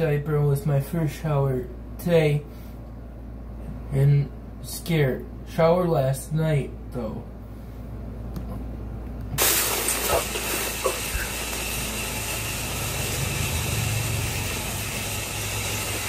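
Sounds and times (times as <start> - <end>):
shower spray hissing: 9.4 - 16.0.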